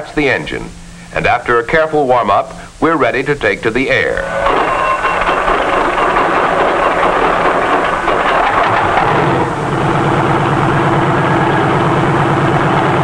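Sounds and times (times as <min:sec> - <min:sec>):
helicopter engine and rotor drone: 0:04.2 - 0:13.0.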